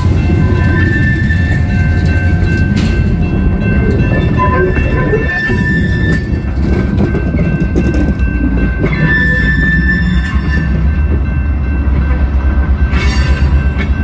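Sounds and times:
train wheels rumbling on rails: 0:00.0 - 0:14.0
high-pitched wheel squeal: 0:04.4 - 0:06.4.

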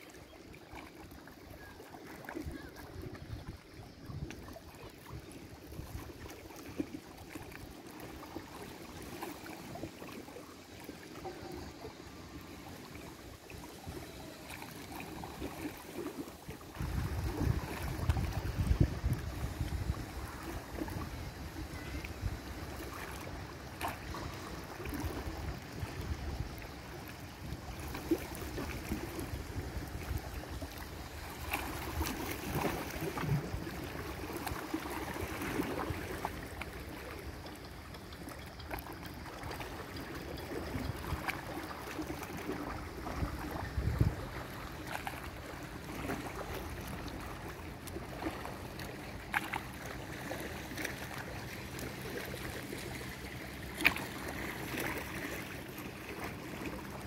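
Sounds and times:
sea water splashing and lapping: 0:00.0 - 0:57.0
wind buffeting microphone: 0:16.8 - 0:21.0, 0:43.1 - 0:44.4.

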